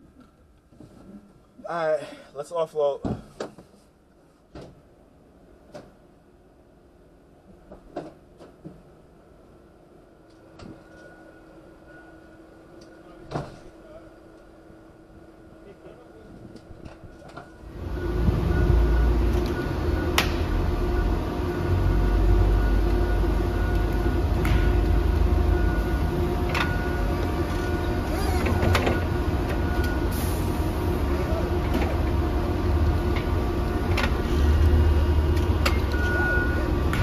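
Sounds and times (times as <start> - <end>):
forklift engine rumble: 16.7 - 37.0.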